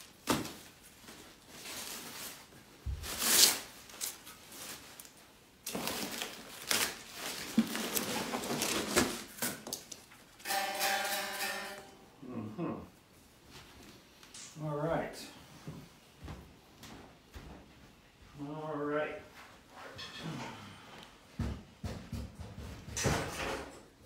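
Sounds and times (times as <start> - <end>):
packing paper and foam rustling: 0.0 - 10.3
guitar strings ringing: 10.4 - 12.1.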